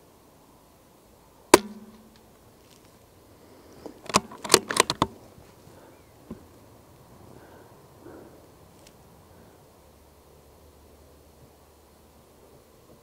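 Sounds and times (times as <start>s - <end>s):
rifle shot: 1.5s - 2.2s
rifle bolt clicks: 4.0s - 5.2s.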